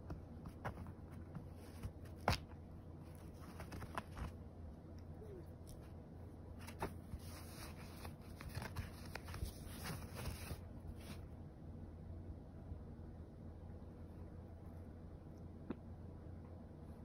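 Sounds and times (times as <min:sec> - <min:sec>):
cloth rustling and scratching: 0:00.4 - 0:04.4, 0:06.6 - 0:11.3.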